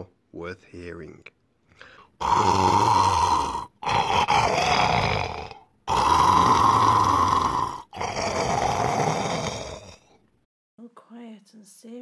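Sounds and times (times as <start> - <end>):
person imitating snoring: 2.2 - 10.2.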